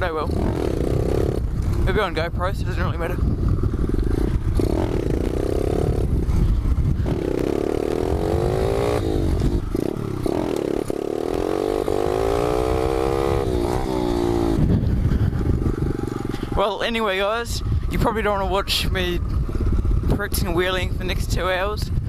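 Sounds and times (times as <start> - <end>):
motorbike engine revving: 0.0 - 16.7
wind rumbling on microphone: 0.0 - 22.0.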